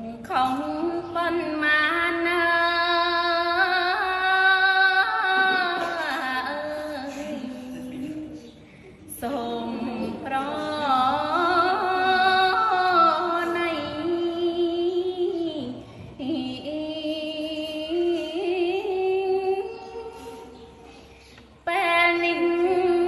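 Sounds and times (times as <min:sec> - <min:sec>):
woman chanting verse: 0:00.0 - 0:23.0
breath: 0:15.8 - 0:16.2, 0:20.2 - 0:21.5.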